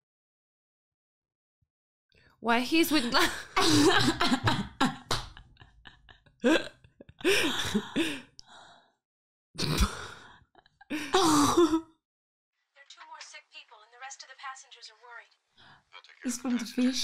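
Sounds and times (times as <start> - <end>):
women laughing: 2.9 - 8.2
breathy outbreaths: 7.2 - 9.0, 9.6 - 11.7, 15.6 - 15.9.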